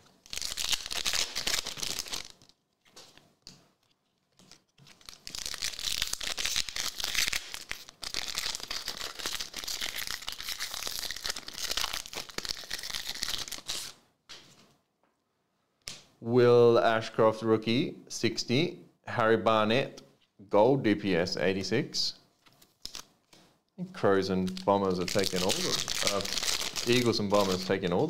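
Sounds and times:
foil wrappers crinkling and tearing: 0.0s - 3.2s, 3.8s - 14.0s, 22.5s - 23.1s, 24.5s - 28.0s.

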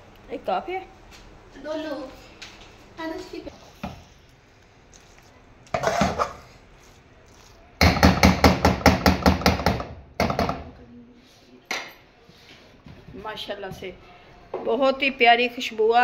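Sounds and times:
spoon scraping pan: 4.9s - 7.5s.

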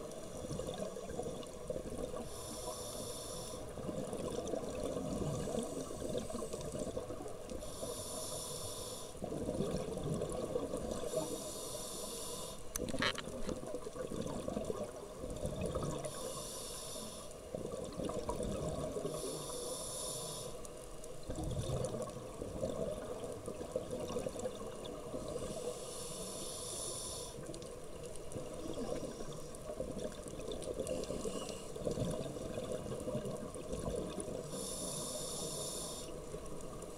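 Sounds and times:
regulator inhale hiss: 2.2s - 3.8s, 5.3s - 9.3s, 10.9s - 12.7s, 16.0s - 17.5s, 19.0s - 20.8s, 25.3s - 27.6s, 30.8s - 31.9s, 34.4s - 36.6s.

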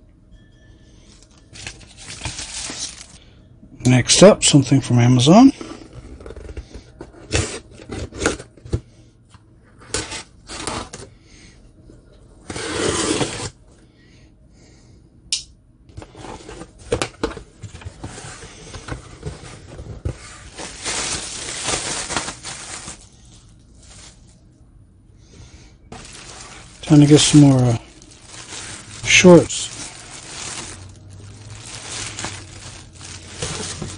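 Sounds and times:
plastic bags rustling: 1.2s - 3.2s, 17.6s - 24.4s, 25.9s - 33.9s.

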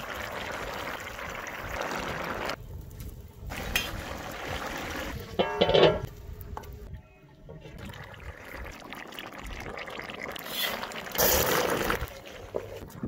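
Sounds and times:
stew bubbling and sloshing: 0.0s - 2.6s, 3.5s - 5.4s, 7.6s - 13.0s.

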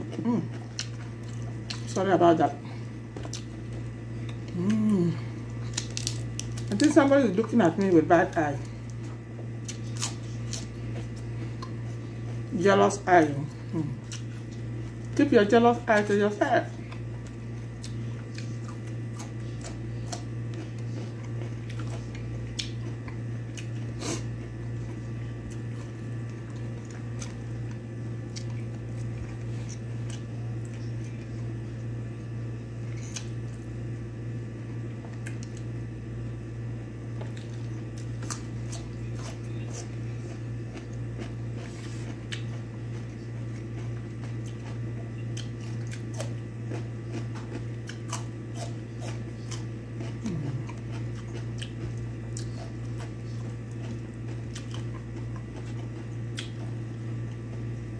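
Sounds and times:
crunching and wet chewing: 0.0s - 2.0s, 2.7s - 57.9s
steady low hum: 0.0s - 57.9s.

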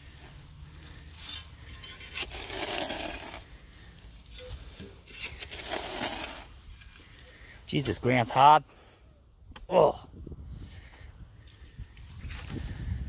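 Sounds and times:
shovel scraping dirt: 0.7s - 7.1s.

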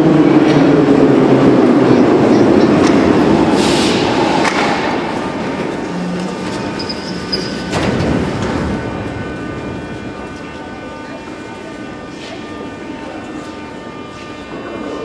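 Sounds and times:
metro train slowing to a stop: 0.0s - 15.0s
train doors sliding open: 1.7s - 10.5s.

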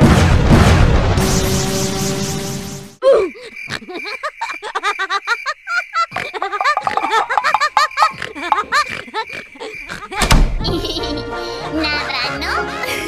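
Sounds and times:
high-pitched giggling: 3.0s - 13.0s
background music: 10.6s - 13.0s.

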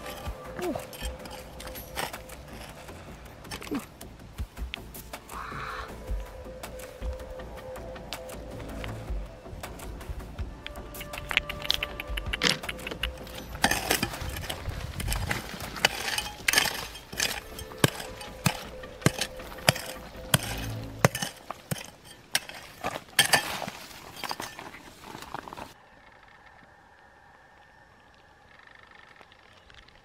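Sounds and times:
hard objects clinking and knocking: 0.0s - 3.9s, 11.0s - 25.7s.

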